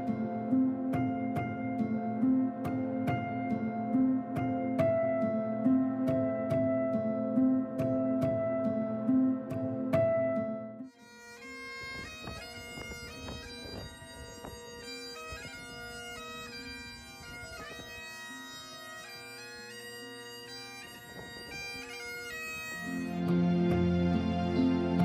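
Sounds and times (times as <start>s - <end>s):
soft background music: 0.0s - 11.0s, 22.8s - 25.0s
bagpipe melody: 10.8s - 25.0s
bagpipe drones humming: 10.9s - 25.0s.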